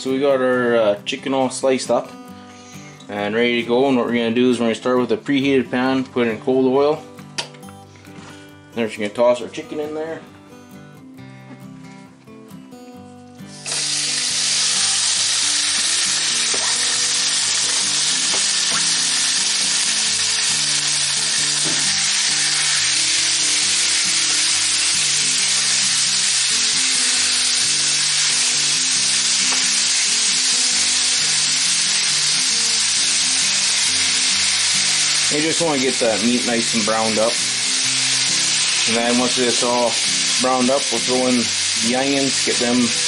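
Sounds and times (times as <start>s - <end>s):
meat sizzling in a pan: 13.4s - 43.0s.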